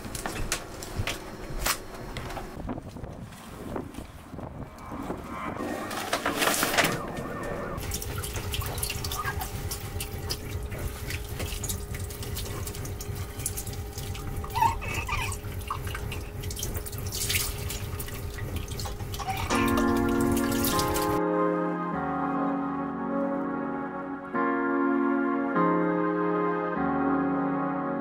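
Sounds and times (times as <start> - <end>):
steady low hum: 0.0 - 21.2
sail canvas rustling: 0.4 - 4.5.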